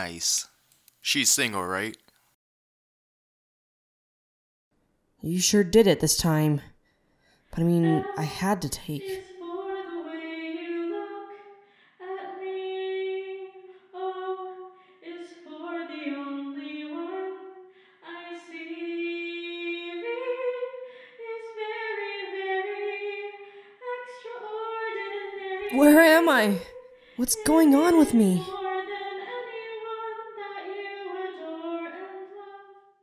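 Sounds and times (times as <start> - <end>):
singer breathing: 6.8 - 7.5, 11.6 - 12.0
woman singing slow melody: 7.6 - 32.8.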